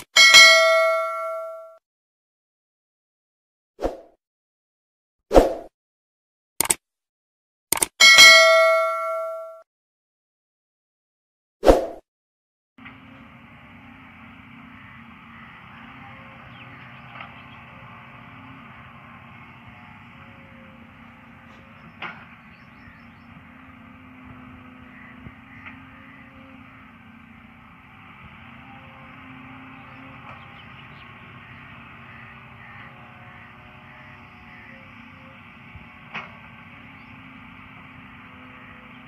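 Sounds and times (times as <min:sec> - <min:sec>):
distant excavator diesel engine: 0:12.8 - 0:39.0.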